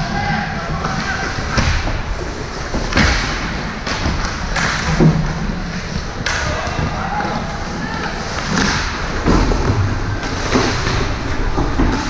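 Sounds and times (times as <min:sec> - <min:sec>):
noisy venue background: 0:00.0 - 0:12.0.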